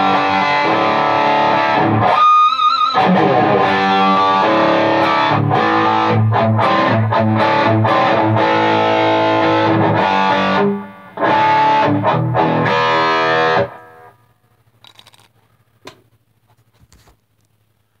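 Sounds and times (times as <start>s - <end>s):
distorted electric guitar: 0.0s - 14.2s
small clicks: 14.8s - 16.0s.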